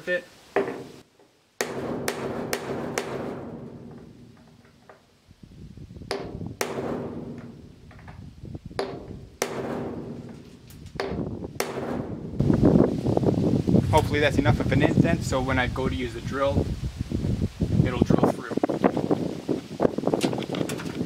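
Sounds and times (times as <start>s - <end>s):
hammer striking metal: 1.6s - 4.5s, 6.1s - 7.6s, 8.8s - 12.2s
metal panel ringing: 1.6s - 4.8s, 6.1s - 8.1s, 8.8s - 12.4s.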